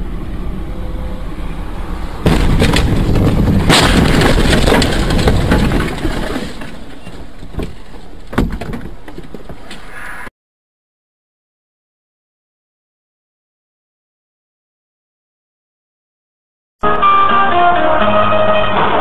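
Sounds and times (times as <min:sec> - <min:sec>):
crash noise: 0:02.2 - 0:07.6
car crash impact: 0:02.2 - 0:09.0
sharp knocks: 0:07.3 - 0:09.7.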